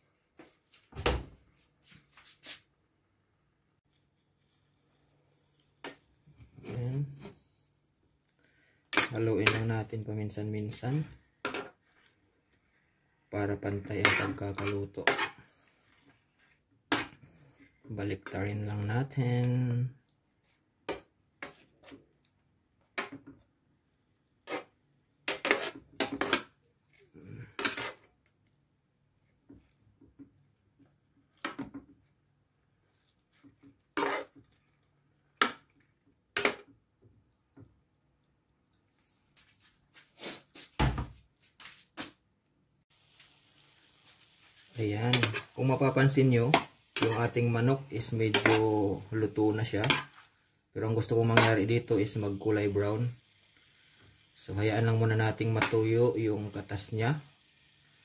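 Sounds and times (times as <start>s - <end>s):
utensil clinking and scraping pan: 13.7s - 15.6s, 33.9s - 34.4s, 45.0s - 49.0s, 49.6s - 50.4s.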